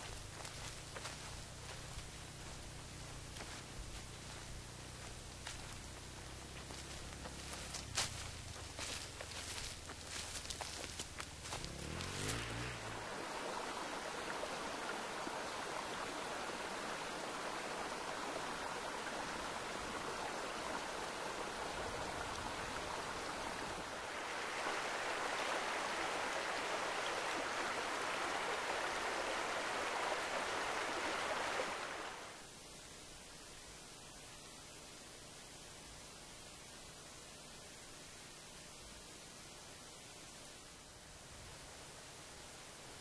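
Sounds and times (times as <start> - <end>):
creek water rushing over dam: 0.0 - 33.6.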